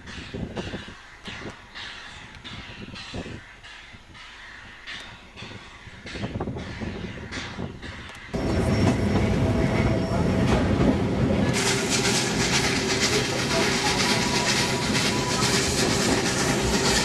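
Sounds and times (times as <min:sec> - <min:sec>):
train wheels rattling over rail joints: 0:07.8 - 0:17.0.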